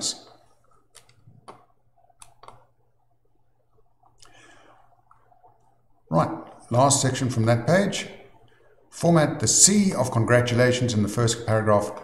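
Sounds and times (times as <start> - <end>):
computer mouse clicks: 0.6 - 2.7.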